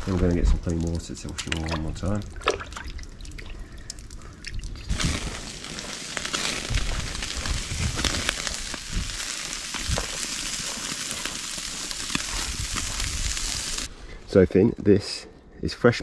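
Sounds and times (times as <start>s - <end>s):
fish sizzling on a grill: 4.9s - 13.9s.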